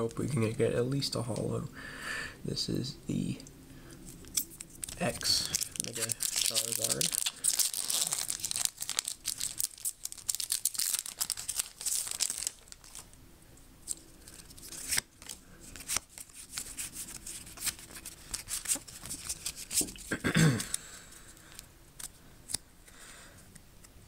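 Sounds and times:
cards rustling and clicking: 4.1 - 13.1, 13.8 - 22.6
wrapper tearing and crinkling: 4.2 - 13.1.

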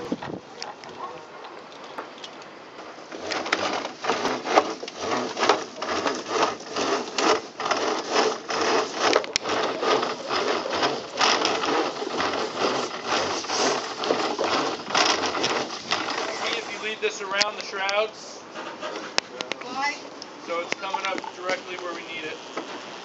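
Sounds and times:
rope rasping through block: 2.8 - 19.3.

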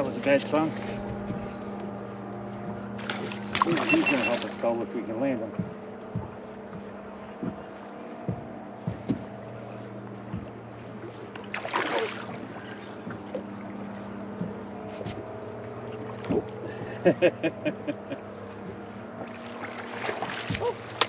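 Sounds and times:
electric boat motor humming: 0.0 - 21.0
water splashing: 2.8 - 5.1, 9.2 - 16.9, 19.1 - 21.0.

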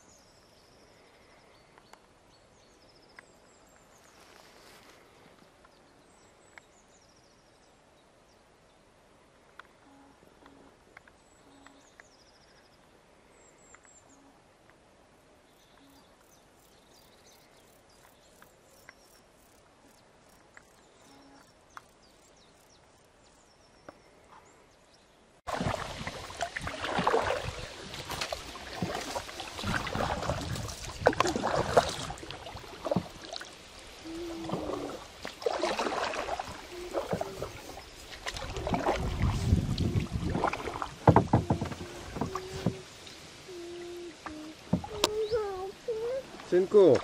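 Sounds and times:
faint bird chirps: 15.4 - 25.2, 41.8 - 46.2
canoe paddle splashing and knocking: 25.5 - 43.2, 44.2 - 45.6, 46.3 - 47.0.

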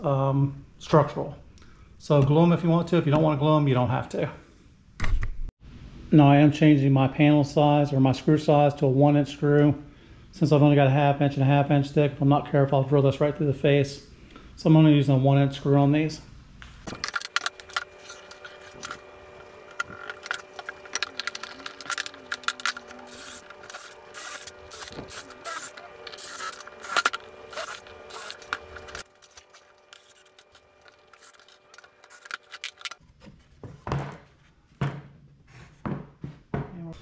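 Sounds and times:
wood pieces and tools clicking: 16.9 - 33.0.

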